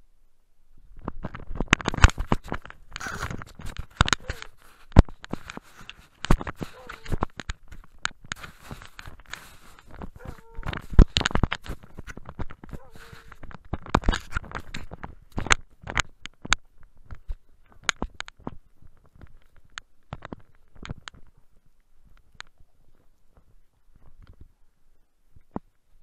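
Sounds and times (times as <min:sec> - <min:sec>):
snow crunching: 0:03.0 - 0:07.2, 0:08.4 - 0:12.2, 0:12.8 - 0:13.4.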